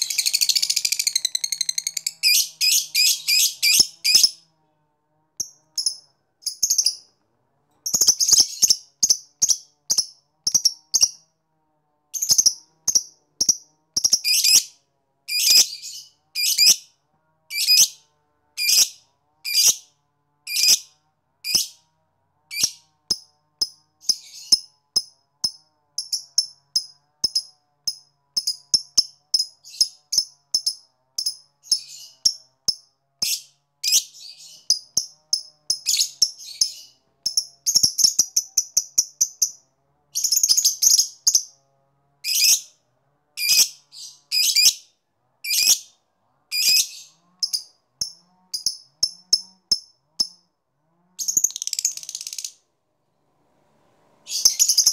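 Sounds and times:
lovebird shrill chirps: 0.0 - 4.4, 43.4 - 44.8, 45.5 - 45.8, 51.2 - 52.6, 54.3 - 54.9.

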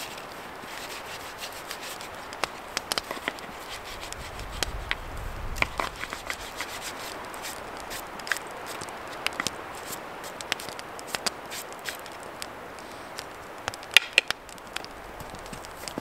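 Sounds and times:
knife whittling wood: 0.0 - 5.0, 5.6 - 12.2
steady hiss: 0.0 - 16.0.

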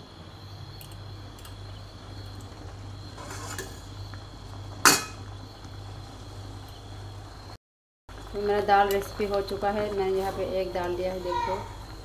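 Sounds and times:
ladle scraping pot: 3.1 - 3.9.

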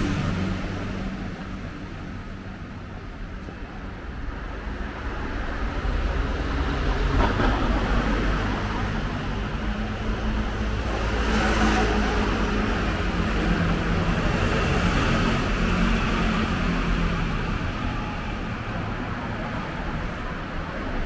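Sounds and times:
low rumble of traffic: 0.0 - 21.0.

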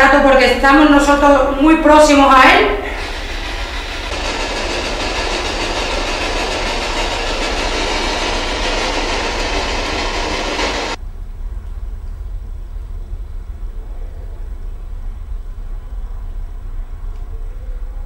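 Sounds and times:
low hum: 1.0 - 18.0
loud static hiss: 2.1 - 11.3.

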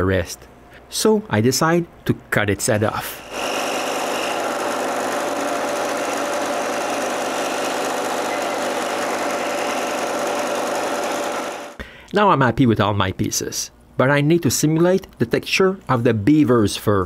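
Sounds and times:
scroll saw buzzing: 3.2 - 11.8.

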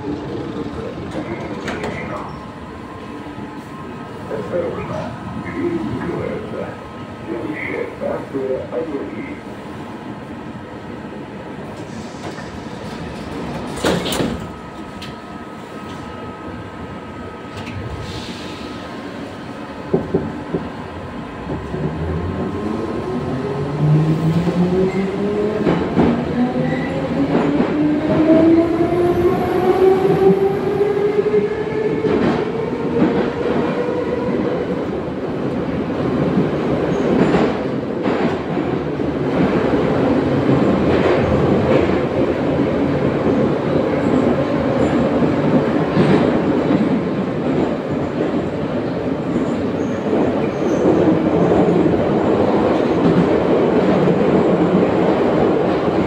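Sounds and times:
rail clacks: 0.0 - 2.3, 11.8 - 15.2.

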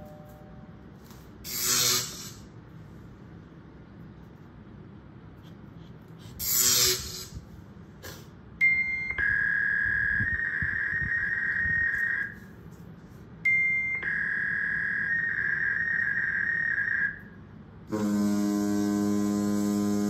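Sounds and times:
electronic beep and tone: 8.6 - 12.4.

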